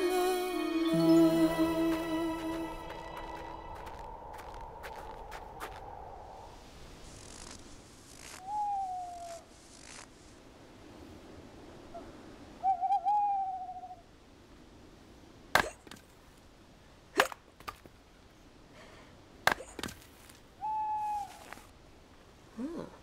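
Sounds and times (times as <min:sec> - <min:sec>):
owl hooting: 0:20.6 - 0:21.6.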